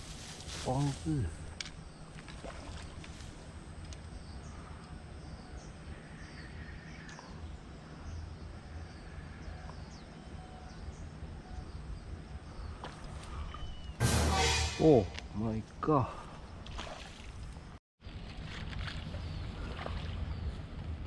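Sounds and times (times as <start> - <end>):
small birds chirping: 0.6 - 14.0.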